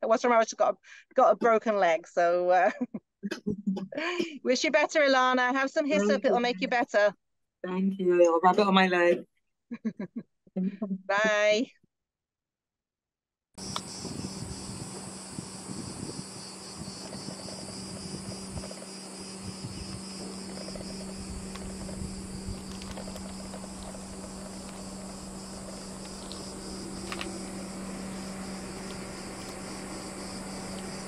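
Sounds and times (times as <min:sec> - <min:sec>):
insects chirping: 0:13.6 - 0:31.0
steady low hum: 0:13.6 - 0:31.0.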